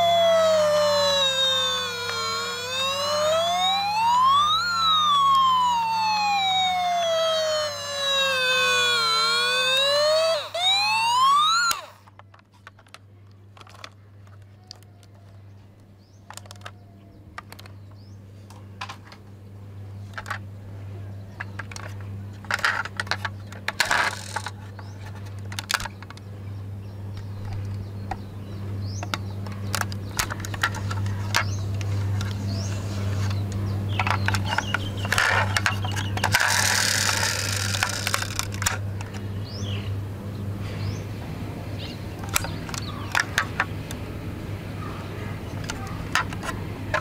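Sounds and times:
toy siren rising and falling: 0.0 - 12.1, 23.8 - 24.5, 34.0 - 38.8
toy vehicles clicking and knocking: 0.0 - 15.4, 16.2 - 17.8, 20.1 - 20.4, 21.4 - 26.2, 29.0 - 39.2, 42.2 - 44.0, 45.6 - 47.0.

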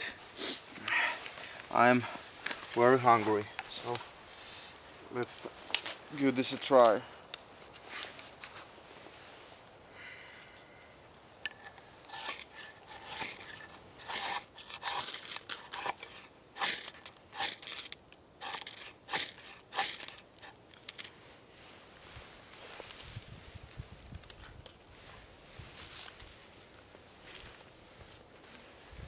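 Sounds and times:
knife scraping ferro rod: 11.5 - 21.1.

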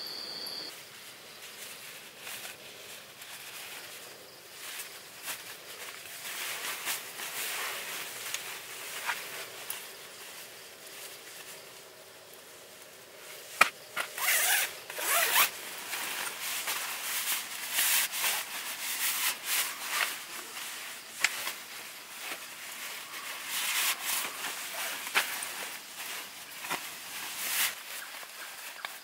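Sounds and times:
nylon fabric rustling: 1.5 - 12.0, 13.3 - 29.0
zipper rasping on nylon bag: 14.2 - 15.5.

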